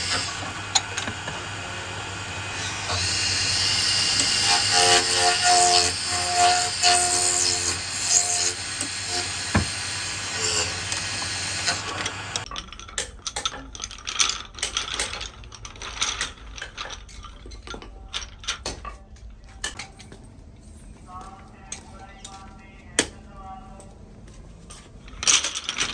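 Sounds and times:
wood lathe cutting: 0:00.0 - 0:12.5.

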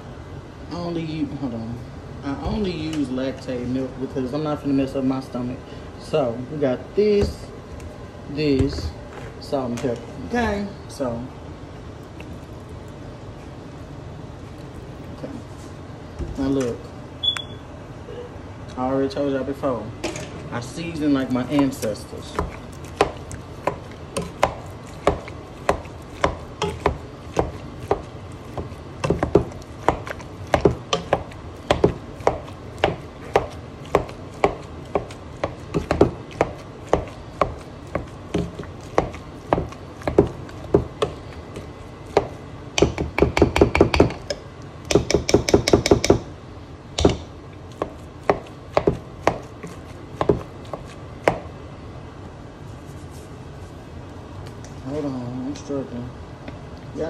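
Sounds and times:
potato masher knocking in metal pot: 0:21.5 - 0:41.2, 0:42.1 - 0:46.3.

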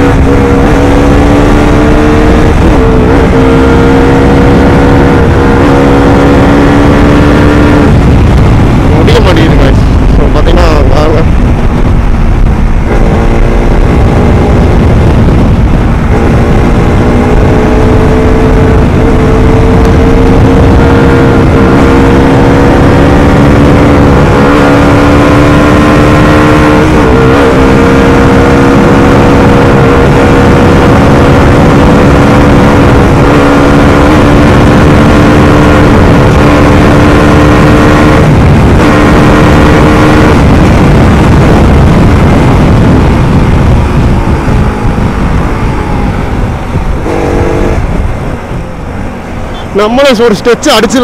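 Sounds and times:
motorcycle engine at full throttle: 0:00.0 - 0:51.0
wind rush: 0:00.0 - 0:51.0.

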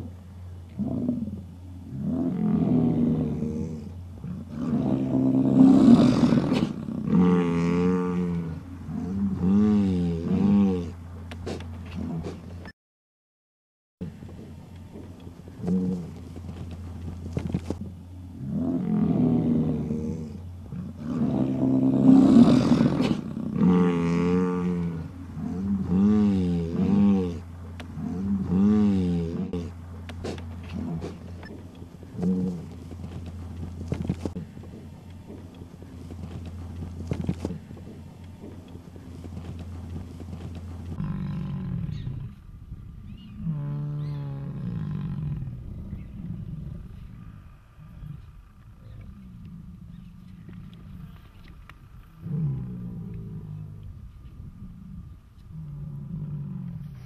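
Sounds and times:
bison bellowing: 0:00.0 - 0:12.6, 0:14.0 - 0:42.4.

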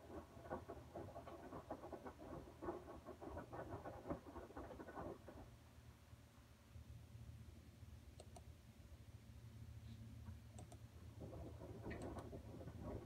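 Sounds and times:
computer mouse clicks: 0:08.2 - 0:08.5, 0:10.6 - 0:10.8, 0:11.9 - 0:12.3.

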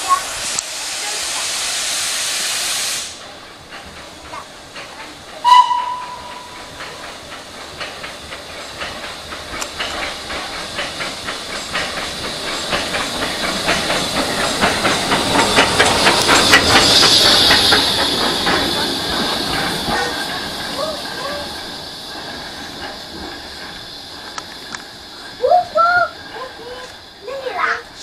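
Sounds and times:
steam hiss: 0:00.0 - 0:28.0
steam locomotive passing: 0:00.0 - 0:28.0
steam whistle: 0:05.4 - 0:06.6.

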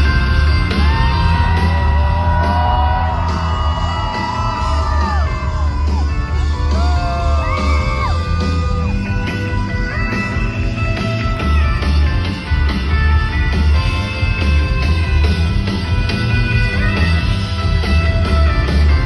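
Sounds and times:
crowd yelling and singing along: 0:00.0 - 0:19.0
live rock band playing: 0:00.0 - 0:19.0.

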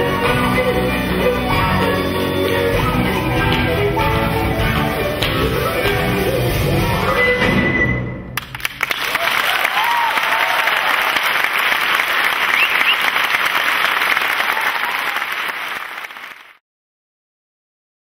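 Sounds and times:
audience applauding: 0:08.4 - 0:16.6.

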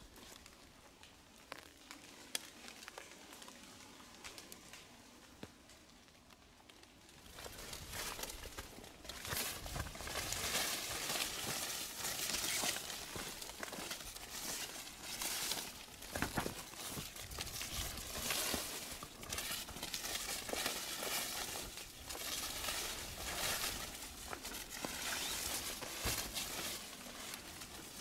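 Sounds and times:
footsteps crunching on trail: 0:07.2 - 0:28.0.

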